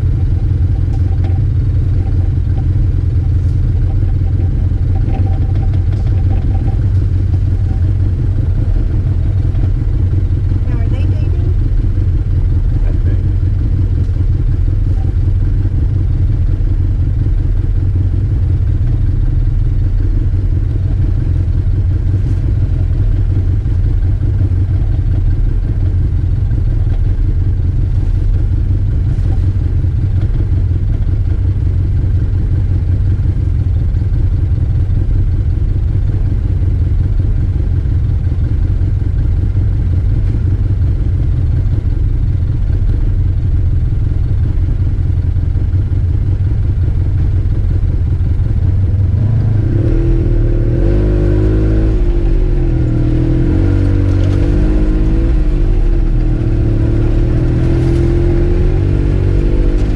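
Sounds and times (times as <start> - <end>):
engine running at low speed: 0.0 - 59.9.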